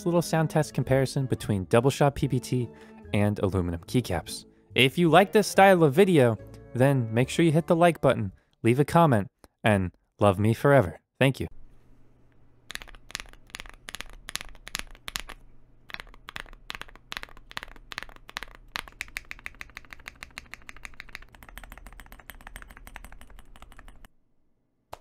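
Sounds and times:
typing on mechanical keyboard: 12.7s - 24.1s.

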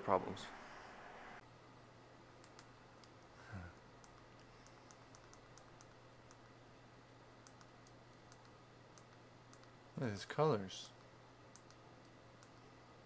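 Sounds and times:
low room hum: 0.0s - 13.0s
faint sharp clicks: 10.8s - 12.6s.

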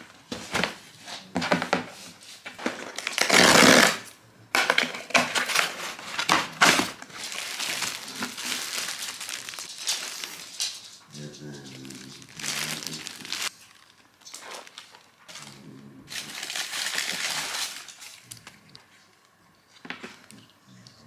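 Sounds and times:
plastic wrapping crinkling: 2.6s - 19.3s
cardboard box tearing open: 2.9s - 4.0s.

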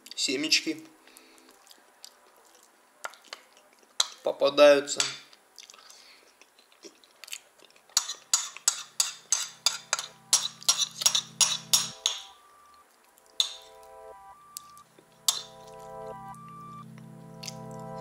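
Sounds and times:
faint background music: 0.0s - 5.6s, 8.8s - 18.0s
metal spoon scraping ceramic bowl: 8.0s - 12.3s.

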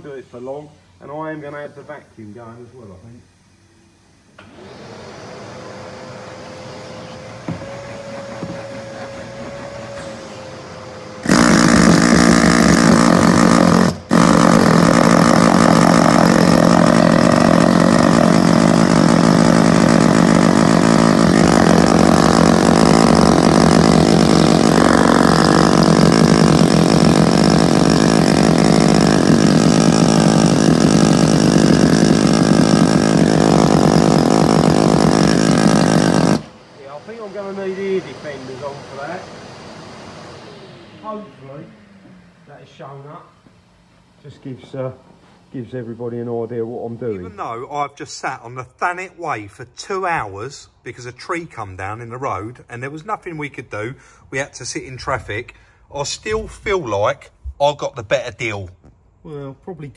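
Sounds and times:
vacuum cleaner running: 4.3s - 47.4s
pneumatic air chisel hammering: 6.9s - 36.6s.

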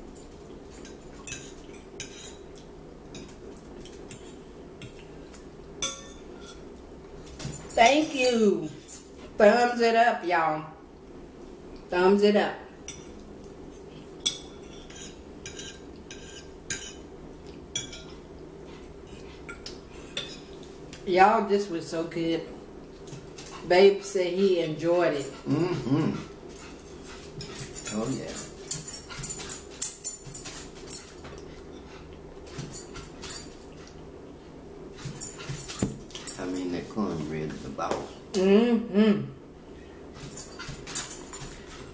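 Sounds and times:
low steady hum: 0.0s - 41.9s
forks clinking on plates: 0.2s - 2.4s, 5.8s - 6.6s, 14.2s - 17.0s, 17.8s - 18.2s, 26.6s - 31.4s, 32.5s - 33.6s, 40.2s - 41.9s.

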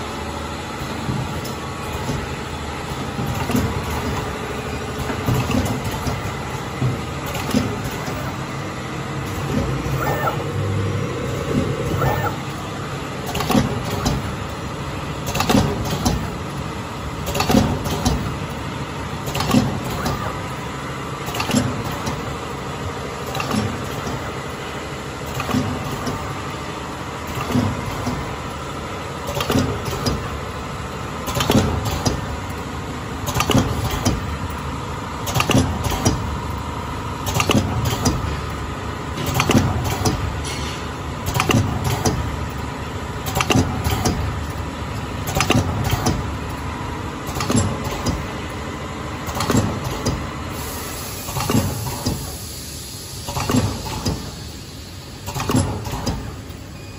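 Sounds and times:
machine motor hum: 0.0s - 40.4s
mechanical clicks and knocks: 5.0s - 8.3s, 13.2s - 14.3s, 15.2s - 16.4s, 17.2s - 18.3s, 19.2s - 20.2s, 31.3s - 32.3s, 33.3s - 34.3s, 35.2s - 36.3s, 37.2s - 38.4s, 39.2s - 40.3s, 41.2s - 42.3s, 43.2s - 46.6s, 47.2s - 48.3s, 49.2s - 50.3s, 53.3s - 54.3s, 55.2s - 56.6s.

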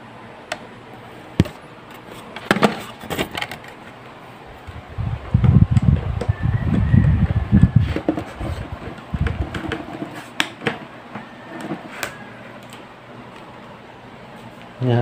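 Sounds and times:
low rubbing rumble: 4.5s - 9.6s.

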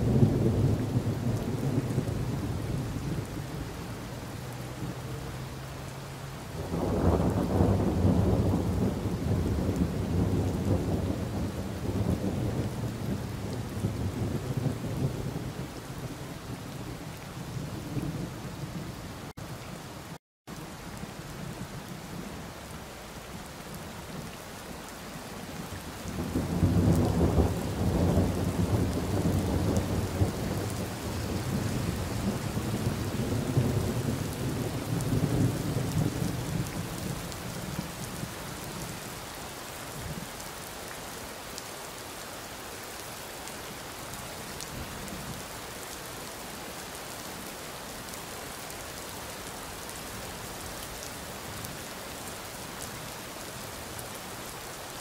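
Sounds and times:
steady rain: 0.0s - 55.0s
rolling thunder: 6.6s - 15.8s, 26.1s - 38.3s.

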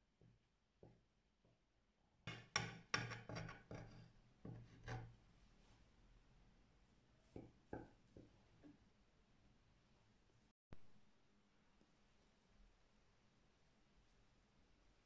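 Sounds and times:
knife scraping on glass board: 3.0s - 5.1s.

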